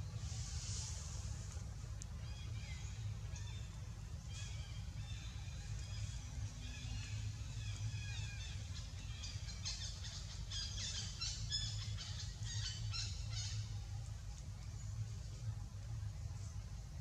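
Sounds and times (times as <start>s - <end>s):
low steady rumble: 0.0s - 17.0s
birds twittering: 2.2s - 15.6s.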